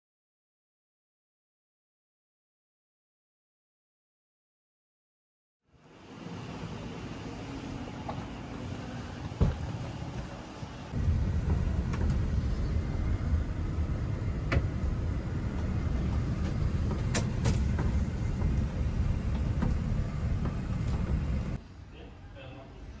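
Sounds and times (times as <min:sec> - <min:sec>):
engine and road rumble: 0:05.8 - 0:21.7
sharp clicks and rattles: 0:15.6 - 0:21.4.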